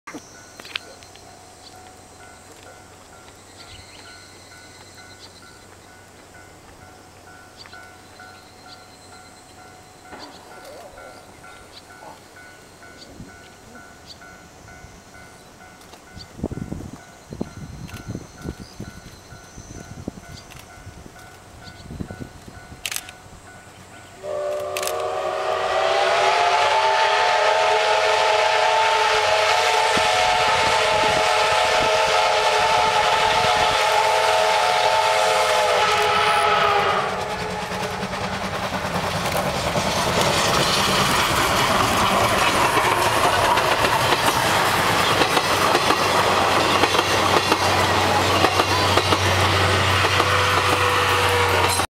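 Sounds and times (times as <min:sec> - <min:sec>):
train clattering over rails: 0:00.1 - 0:14.5, 0:29.8 - 0:51.9
locomotive exhaust rush: 0:24.1 - 0:51.9
steam locomotive whistle: 0:24.2 - 0:39.3, 0:39.9 - 0:51.9.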